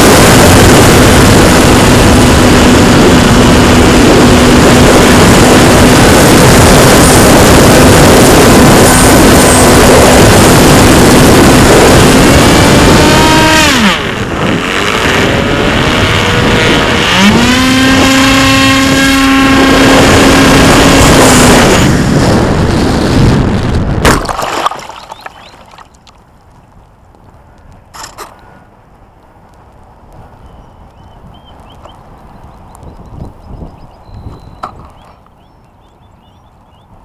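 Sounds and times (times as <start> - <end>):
motor and propeller whine: 0.0 - 23.7
wind rushing over microphone: 0.0 - 28.4, 29.0 - 37.0
plane smacking into water: 24.0 - 26.0.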